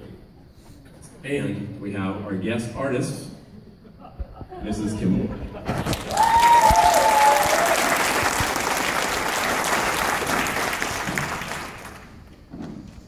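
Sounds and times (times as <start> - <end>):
audience applauding: 5.8 - 12.3
held cheer: 6.0 - 11.7.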